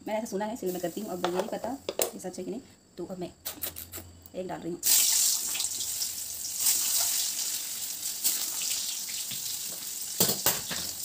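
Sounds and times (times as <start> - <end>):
eggs sizzling in hot oil: 4.8 - 11.0.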